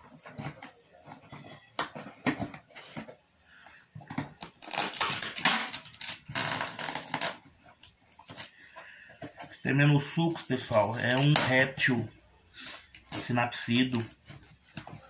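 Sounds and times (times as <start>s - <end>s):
tape tearing off cardboard: 4.4s - 7.5s.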